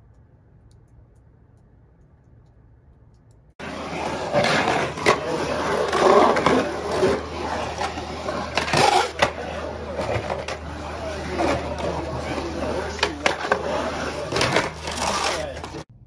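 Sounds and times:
skateboard clacks: 3.6s - 15.8s
skateboard wheels rolling on concrete: 3.6s - 15.9s.

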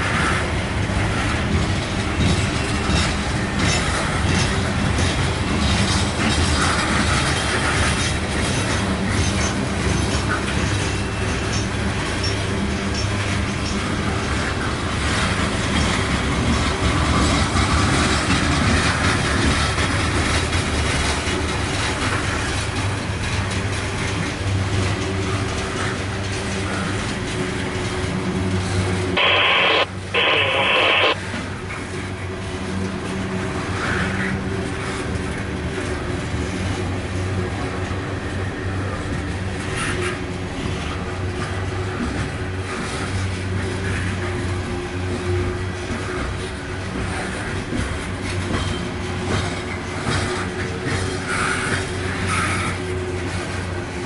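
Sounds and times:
freight train wheels rumbling on rail: 0.0s - 54.0s.

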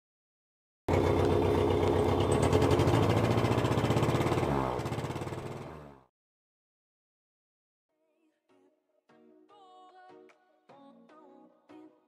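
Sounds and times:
engine running and winding down: 0.9s - 6.1s.

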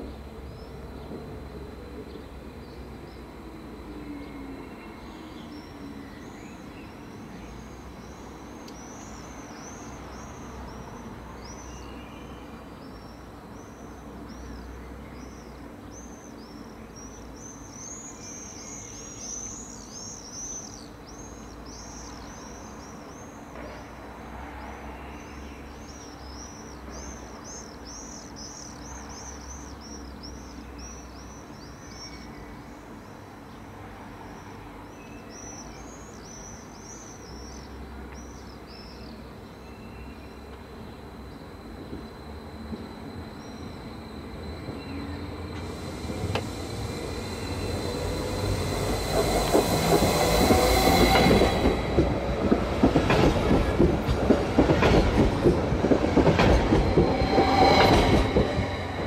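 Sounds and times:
electric train humming: 41.1s - 59.0s.

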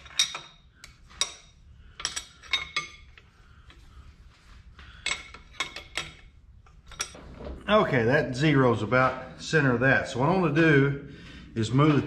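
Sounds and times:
steel tools clinking on metal: 0.0s - 3.2s, 5.0s - 7.2s.

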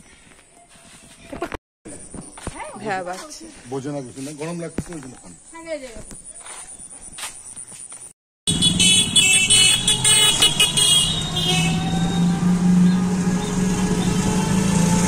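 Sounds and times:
horn tooting rapidly: 8.5s - 14.3s
rickshaw motor hum: 8.5s - 15.0s
road rattle: 8.5s - 15.0s.

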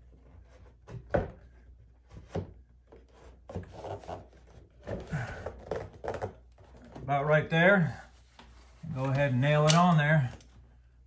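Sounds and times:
molding scraping against wall: 2.0s - 7.2s.

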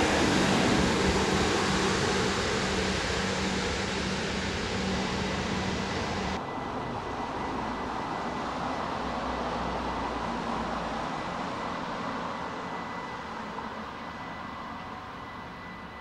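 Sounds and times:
faint high whine: 0.0s - 16.0s
train rumble: 0.0s - 16.0s.

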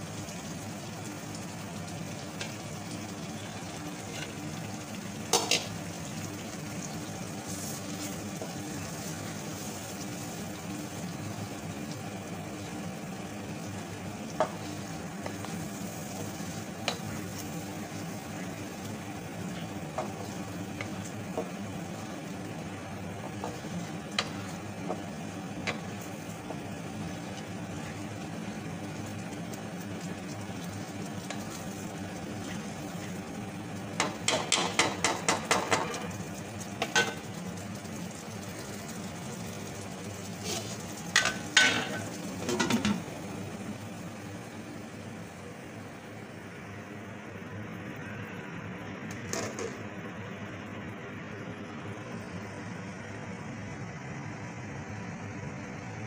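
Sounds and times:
dal sizzling in a frying pan: 0.0s - 55.8s
spatula stirring in a pan: 3.6s - 33.4s, 34.0s - 43.0s
spatula tapping against pan: 34.0s - 36.0s.

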